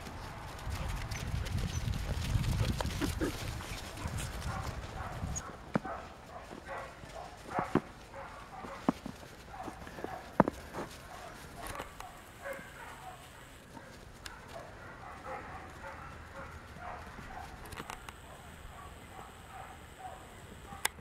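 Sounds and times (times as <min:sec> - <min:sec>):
paws pattering on snow: 0:00.0 - 0:20.8
puppies yipping and whining: 0:02.6 - 0:04.6.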